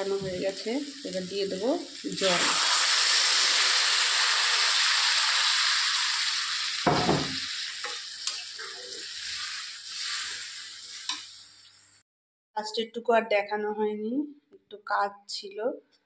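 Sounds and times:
water sizzling in hot wok: 0.0 - 12.0.

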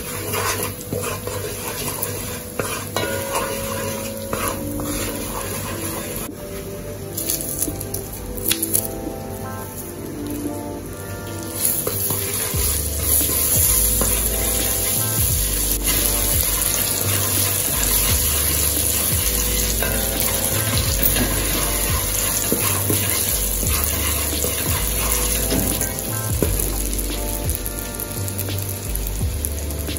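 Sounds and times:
spices sizzling in hot oil: 0.0 - 6.3, 7.0 - 29.9
wooden spoon stirring: 0.0 - 6.3, 11.6 - 26.9
background music: 0.0 - 29.9.

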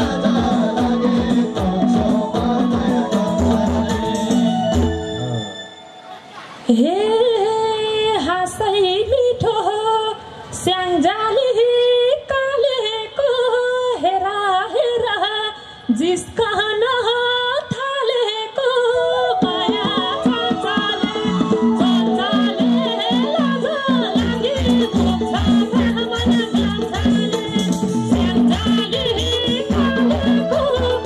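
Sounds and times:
woman singing through a pa: 0.0 - 4.8, 6.7 - 31.0
band playing a steady rhythm: 0.0 - 5.6, 19.3 - 31.0.

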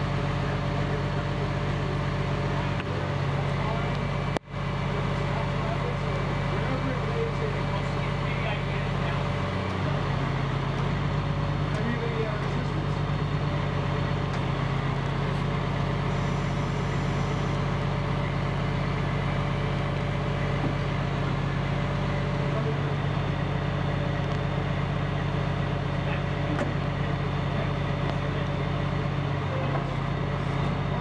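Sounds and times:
truck engine running steadily: 0.0 - 31.0.

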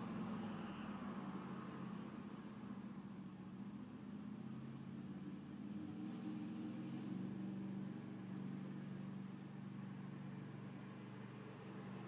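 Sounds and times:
car engine idling: 0.0 - 5.8, 7.1 - 12.0.

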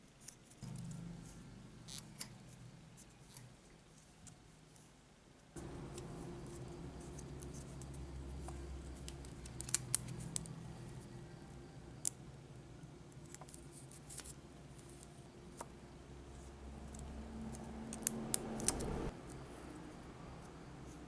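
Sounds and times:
low hum: 5.6 - 13.2, 14.2 - 20.5.

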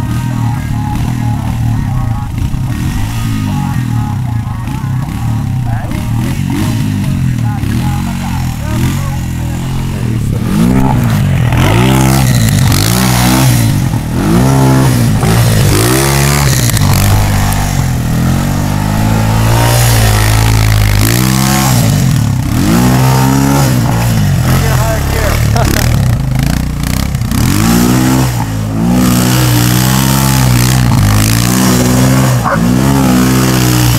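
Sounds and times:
quad engine revving: 0.0 - 33.9.

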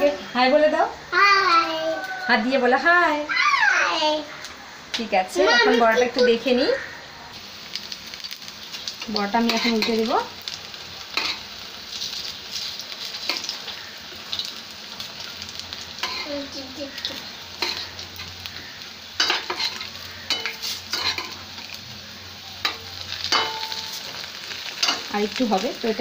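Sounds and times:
fritters sizzling in hot oil: 4.2 - 26.0
metal spatula scraping a pan: 9.4 - 10.1, 16.0 - 16.4, 17.6 - 18.4, 19.2 - 21.4, 22.6 - 25.1.

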